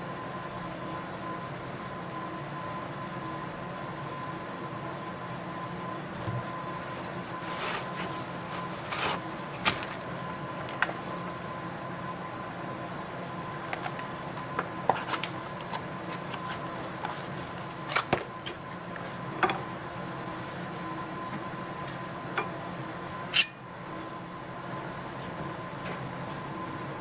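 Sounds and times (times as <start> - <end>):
packaging handling: 6.8 - 11.2, 13.6 - 18.4.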